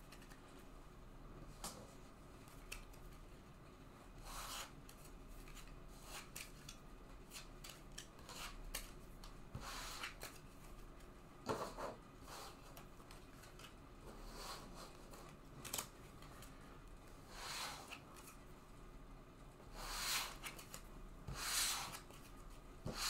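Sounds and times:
cards swishing on tabletop: 19.8s - 23.0s.

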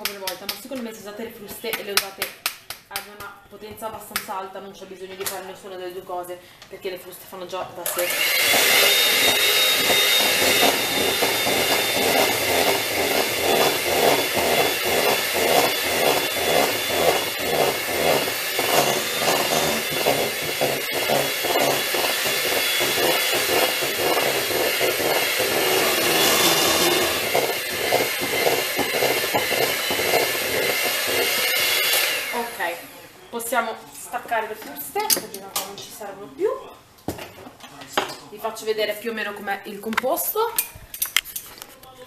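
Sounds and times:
electric hand mixer whine: 7.9s - 33.3s.

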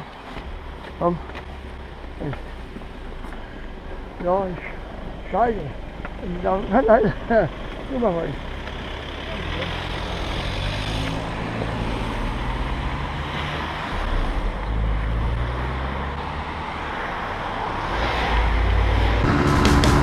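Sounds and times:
motorcycle engine running: 19.2s - 20.0s
music: 19.2s - 20.0s.

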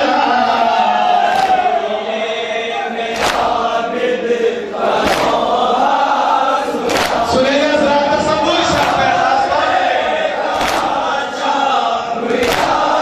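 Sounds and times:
men chanting: 0.0s - 13.0s
chest-beating slaps: 3.2s - 3.6s, 4.9s - 5.6s, 6.8s - 7.3s, 8.7s - 9.2s, 10.5s - 11.1s, 12.3s - 13.0s.

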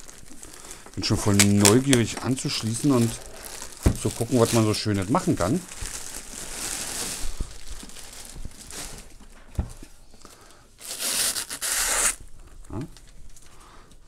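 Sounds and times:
plastic film peeling hiss: 0.0s - 9.2s, 10.2s - 12.3s
plastic packaging crinkling: 0.0s - 9.5s.

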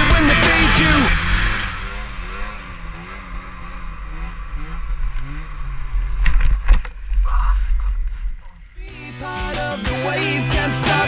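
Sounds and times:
background music: 0.0s - 1.6s, 8.8s - 11.0s
snowmobile engine revving: 0.0s - 11.0s.

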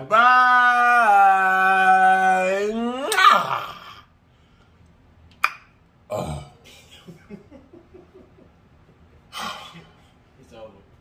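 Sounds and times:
man burping: 6.1s - 6.7s.

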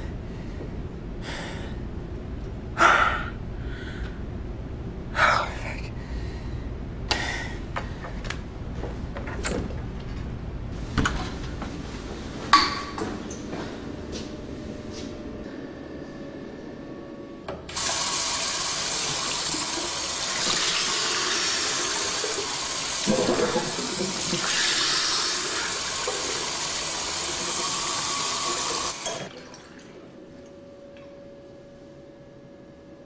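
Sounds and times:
tap water running into sink: 17.7s - 29.8s.

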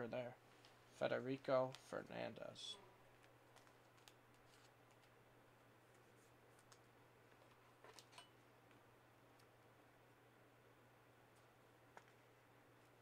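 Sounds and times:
faint low hum: 0.0s - 13.0s
faint clicks of cards handled: 0.5s - 0.8s, 1.6s - 1.9s, 3.2s - 5.2s, 5.8s - 9.6s, 11.3s - 13.0s.

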